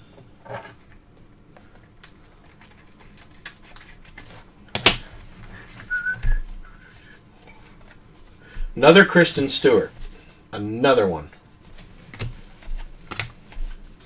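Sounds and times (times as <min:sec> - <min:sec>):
cards and packaging rustling: 0:01.6 - 0:06.2, 0:11.8 - 0:14.0
soft whistled notes: 0:05.8 - 0:06.9.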